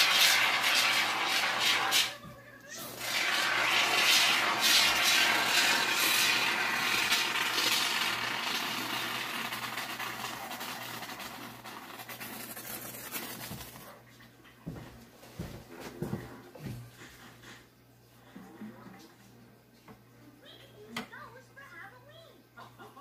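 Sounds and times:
spray foam can hissing: 0.0 - 2.1, 3.1 - 13.8.

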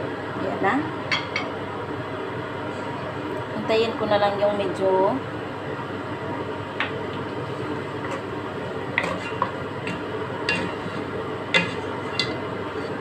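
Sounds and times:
wooden spatula scraping metal pot: 9.0 - 13.0.

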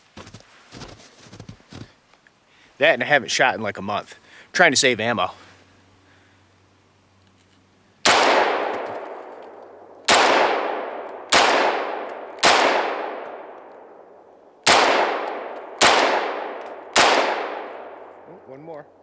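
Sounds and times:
pistol shots with echo: 8.0 - 14.0, 14.6 - 18.3.

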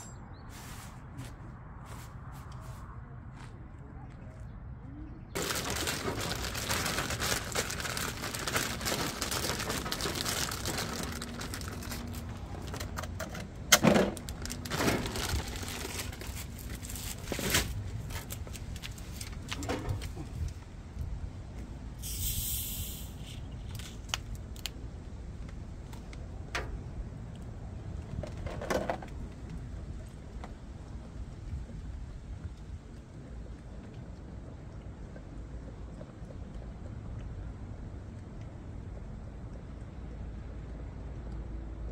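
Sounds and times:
dense crackling noise: 5.4 - 21.1
short hiss: 22.0 - 24.0.

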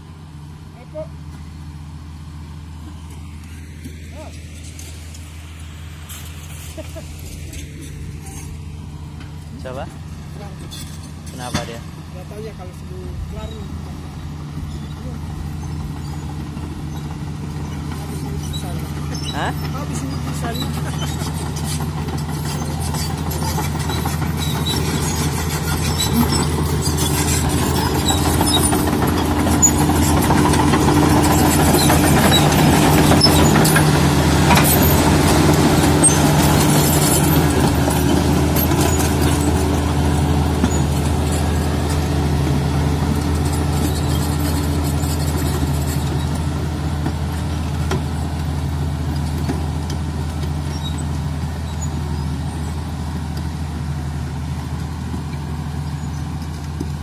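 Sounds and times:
bulldozer diesel engine: 0.0 - 57.0
steel tracks clattering: 14.9 - 42.4.

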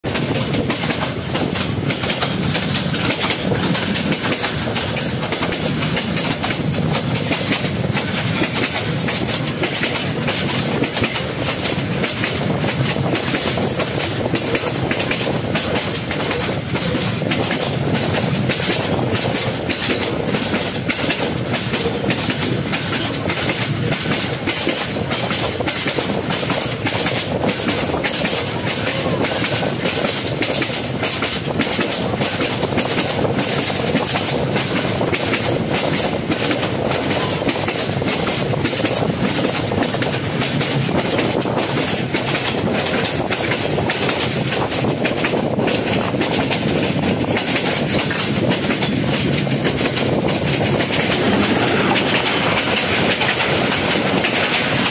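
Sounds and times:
train wheels clattering over rail joints: 0.0 - 54.9.

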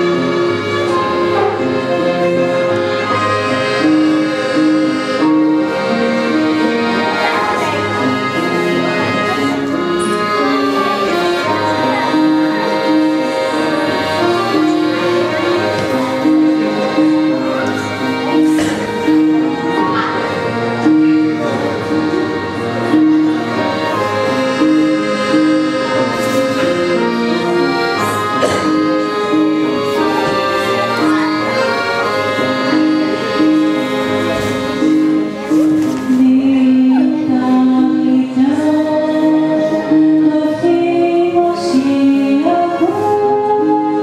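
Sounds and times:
accordion: 0.0 - 44.0
electronic keyboard: 0.0 - 44.0
mixed choir singing a carol: 10.3 - 21.8.

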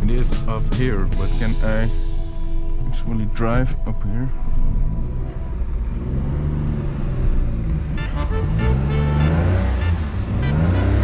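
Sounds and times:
background music: 0.0 - 11.0
car engine revving uphill: 4.3 - 11.0.

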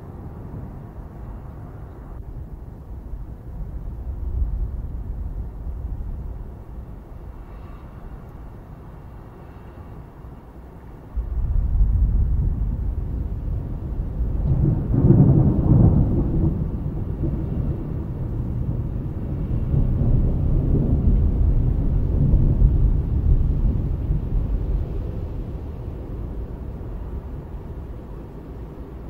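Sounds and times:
deep roll of thunder: 11.1 - 29.0.

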